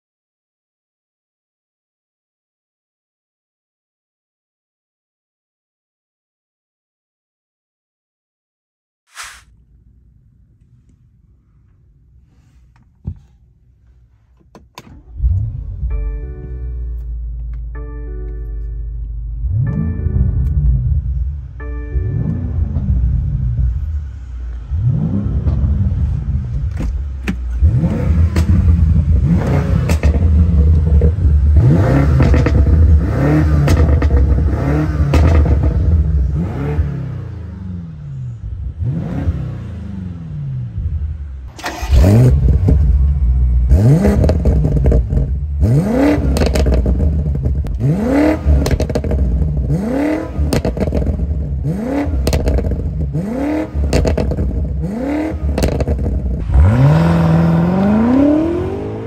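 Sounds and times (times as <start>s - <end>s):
car engine accelerating hard: 14.9s - 17.4s, 19.2s - 59.0s
exhaust cracks: 24.9s - 36.4s, 41.5s - 58.2s.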